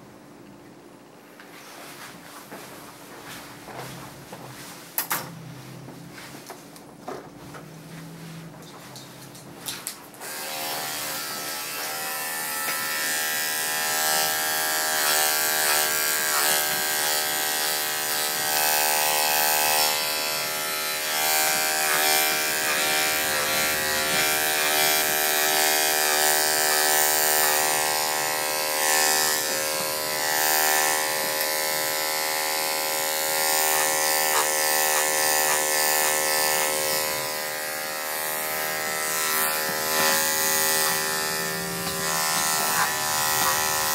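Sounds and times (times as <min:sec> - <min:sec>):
electric clippers buzzing: 0:10.2 - 0:43.9.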